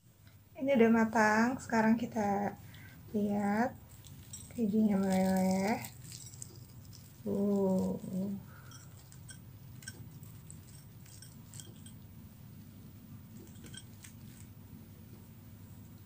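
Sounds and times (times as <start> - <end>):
crispy food crackling: 3.2 - 12.1.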